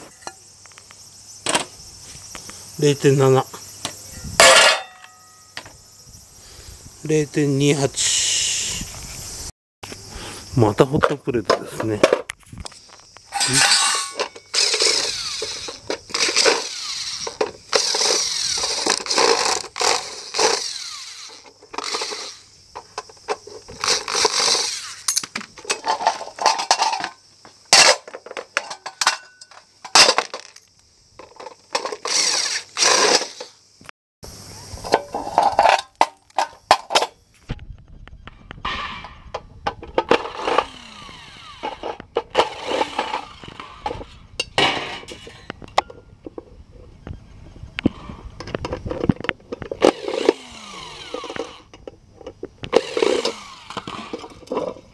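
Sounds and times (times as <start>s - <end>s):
plastic and metal parts clattering: 4.4s - 5.7s, 11.0s - 33.6s, 34.9s - 37.2s, 38.7s - 40.9s, 41.6s - 46.5s, 48.4s - 54.9s
power driver running: 13.4s - 22.4s, 40.2s - 44.2s, 49.9s - 51.6s, 52.7s - 54.4s.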